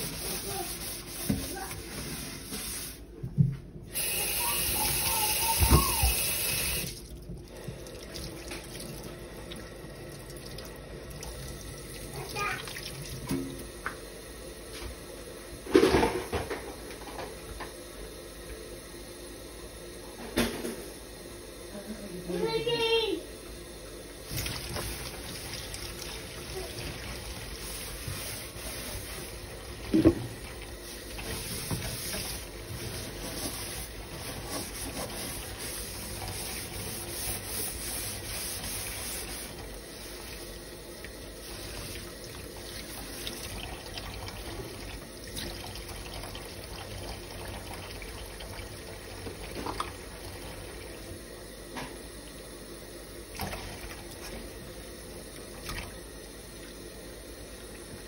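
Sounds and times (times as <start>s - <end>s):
tap running into sink: 13.2s - 14.1s, 29.8s - 30.4s.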